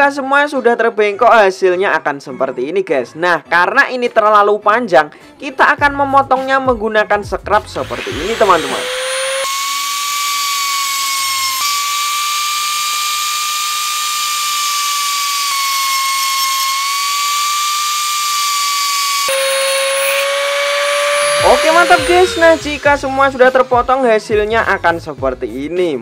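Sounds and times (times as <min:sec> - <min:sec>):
mini grinder cutting metal wire: 0:07.8 - 0:24.0.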